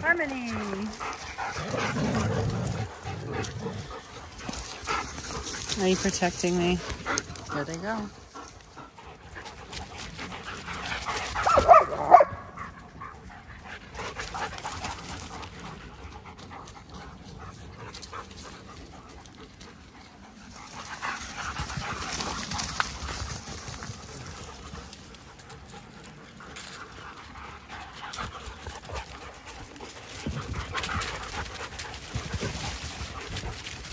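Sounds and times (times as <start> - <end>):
paws running on dry leaves: 0.2 - 33.9
dog yelping: 11.4 - 12.4.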